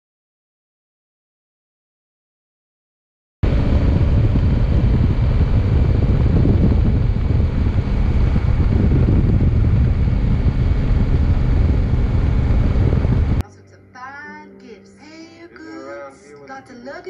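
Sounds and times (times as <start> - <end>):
motorcycle engine running: 3.4 - 13.4
wind rushing over microphone: 3.4 - 13.4.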